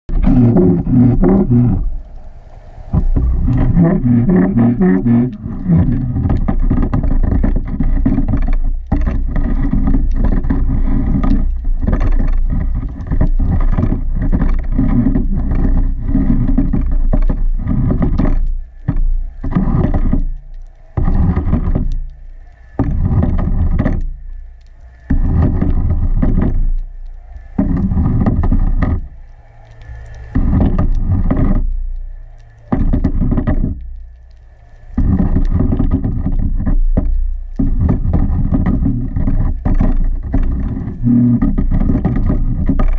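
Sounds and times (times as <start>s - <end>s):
muffled underwater rumble: 0.0s - 42.9s
faint steady hum: 0.1s - 42.9s.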